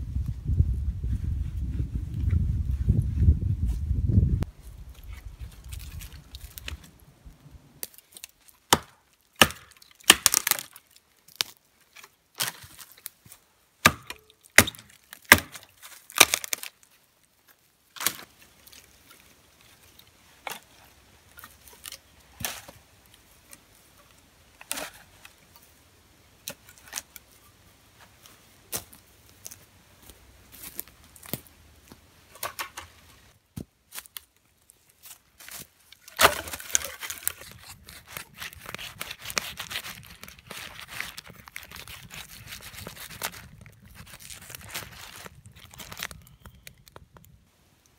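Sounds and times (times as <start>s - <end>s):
dry sticks snapping: 7.8s - 13.1s, 13.8s - 16.8s
hatchet chopping dry wood: 8.7s - 10.7s, 13.8s - 16.6s, 36.1s - 37.6s.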